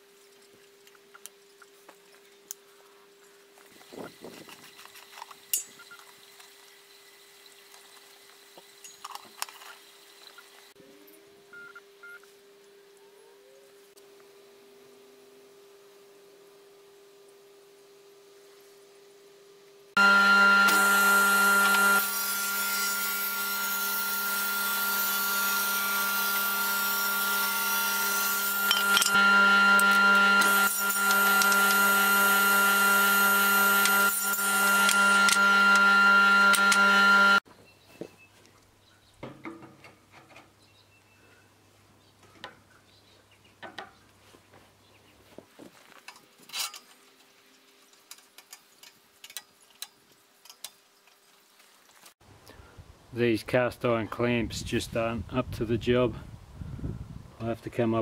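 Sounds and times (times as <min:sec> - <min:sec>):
faint steady hum: 0:00.0 - 0:39.2
table saw ripping wood: 0:20.0 - 0:37.4.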